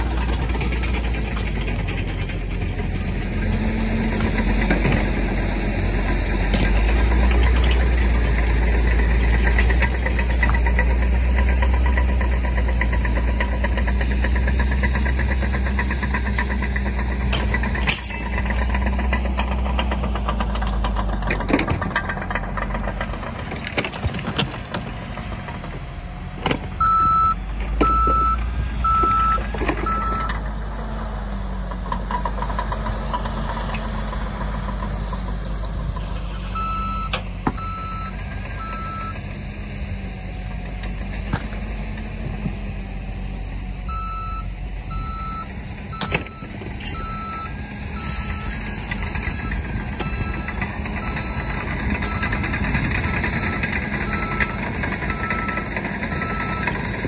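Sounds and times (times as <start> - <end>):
metal knocks and clanks: 0.0 - 30.5
diesel engine running: 0.0 - 57.0
reversing alarm beeps: 26.8 - 30.4, 36.5 - 39.2, 43.9 - 56.8.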